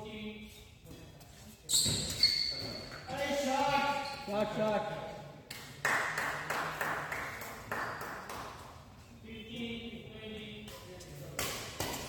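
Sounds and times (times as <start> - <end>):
rackets striking shuttlecock: 11.4 - 12.0.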